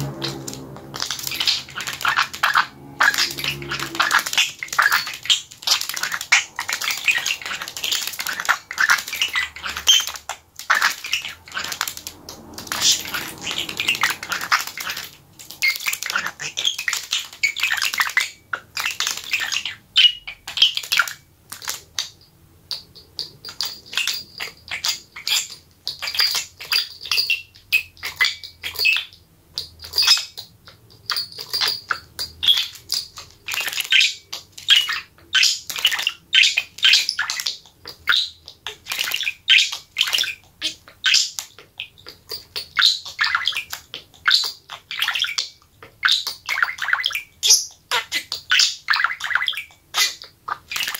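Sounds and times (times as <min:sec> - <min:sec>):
small bells ringing: 0:30.9 - 0:32.4.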